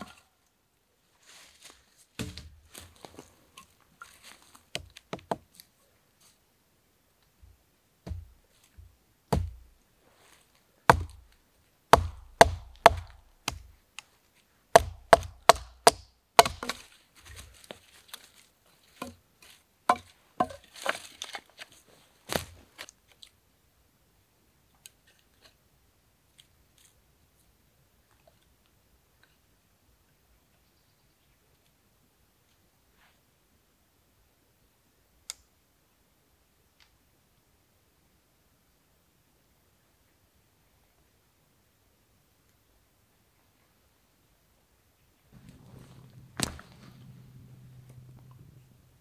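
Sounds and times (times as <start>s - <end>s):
sharp wooden knocks: 8.0s - 8.4s, 9.3s - 9.6s, 10.9s - 11.2s, 11.9s - 13.7s, 14.7s - 16.8s, 19.9s - 20.6s
scraping and rustling: 16.7s - 22.8s, 45.3s - 48.6s.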